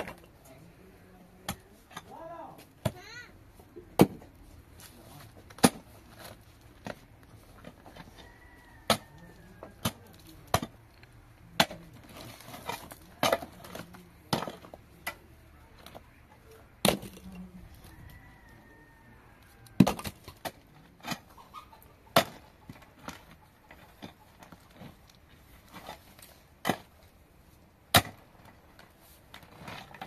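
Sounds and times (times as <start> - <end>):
hoe striking stony soil: 5.3 - 7.0, 22.1 - 25.0, 25.6 - 27.1, 27.9 - 28.5.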